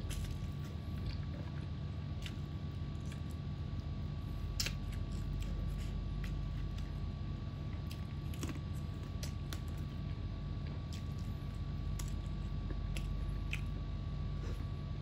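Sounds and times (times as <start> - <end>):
steady low hum: 0.0 - 15.0
person chewing with mouth sounds: 4.4 - 7.0, 7.7 - 9.9, 10.6 - 14.8.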